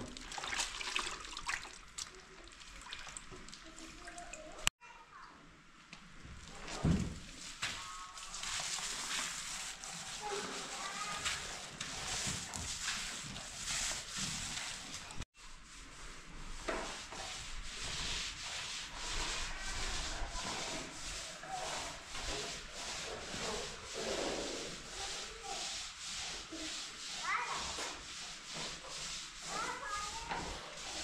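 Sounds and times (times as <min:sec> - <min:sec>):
hand sanding plastered wall: 0:06.5 - 0:31.0.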